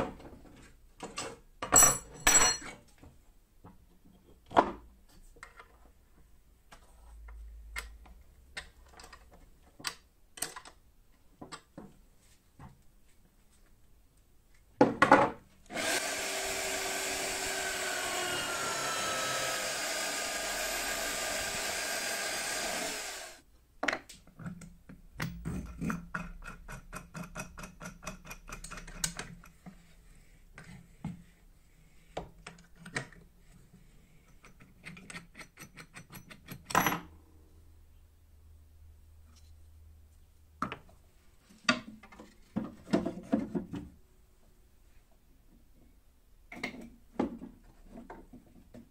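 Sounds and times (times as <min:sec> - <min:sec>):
drill press boring into wood: 0:15.7 - 0:23.4.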